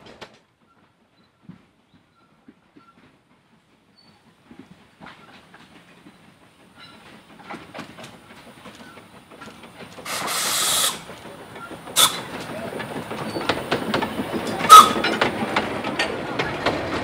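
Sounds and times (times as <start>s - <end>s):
steam train passing: 0.0s - 17.0s
train wheels clattering on rails: 0.0s - 17.0s
steam hissing: 5.9s - 15.8s.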